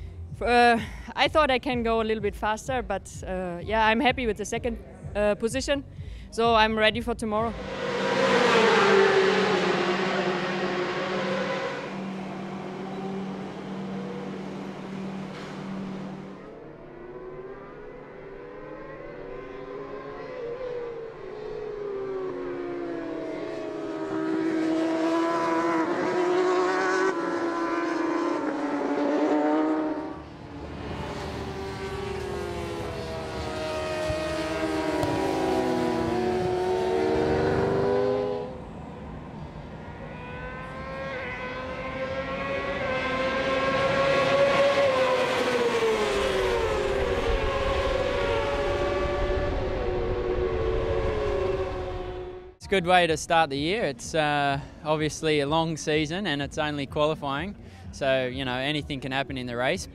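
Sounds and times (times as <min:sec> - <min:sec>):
racing motorcycle engines revving: 0:06.5 - 0:52.7.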